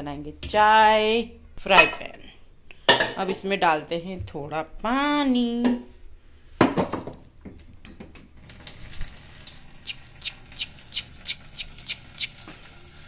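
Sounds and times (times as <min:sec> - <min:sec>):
water running into pot: 0:08.4 - 0:13.0.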